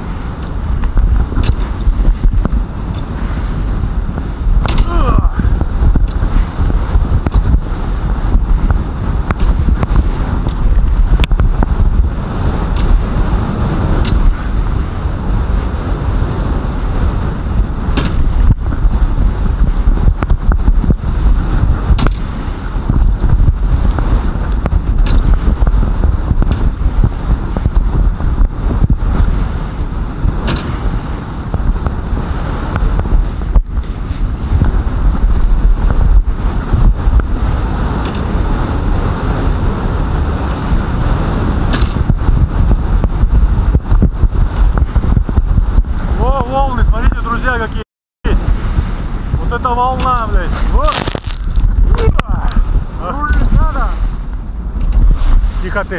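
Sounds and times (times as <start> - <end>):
boat engine low rumble: 0.0 - 55.9
hull slapping on waves: 0.0 - 55.9
wind buffeting microphone: 0.0 - 55.9.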